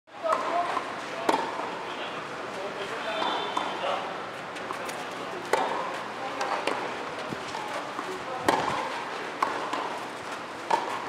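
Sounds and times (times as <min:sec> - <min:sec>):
racket hitting tennis ball: 0:00.2 - 0:01.7, 0:04.7 - 0:06.8, 0:07.4 - 0:11.0.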